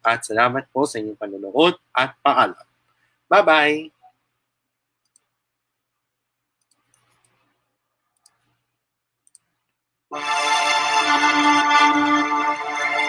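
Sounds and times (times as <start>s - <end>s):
computer mouse clicks: 5.0s - 5.3s, 6.6s - 7.5s, 8.2s - 8.6s, 9.2s - 9.8s.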